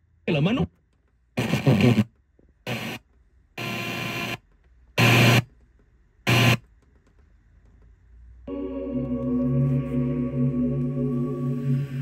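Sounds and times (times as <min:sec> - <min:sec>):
radio static hiss: 0:01.4 - 0:02.1, 0:02.7 - 0:03.0, 0:03.6 - 0:04.4, 0:05.0 - 0:05.4, 0:06.3 - 0:06.6.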